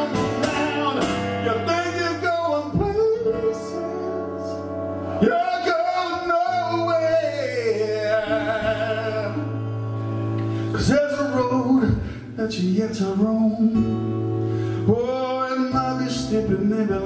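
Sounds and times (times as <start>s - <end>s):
man singing long notes: 0.0s - 9.8s
acoustic guitar chords: 0.0s - 17.0s.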